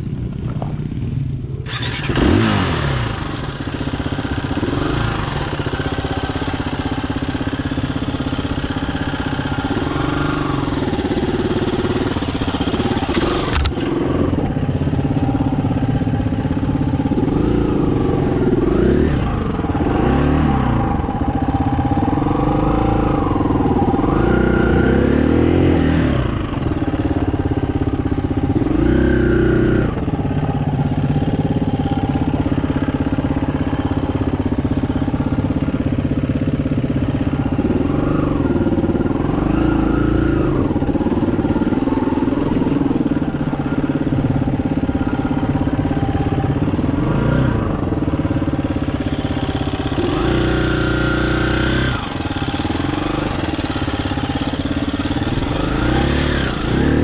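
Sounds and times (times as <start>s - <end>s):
dirt bike engine revving: 0.6s - 57.0s
sharp click: 13.1s - 13.9s.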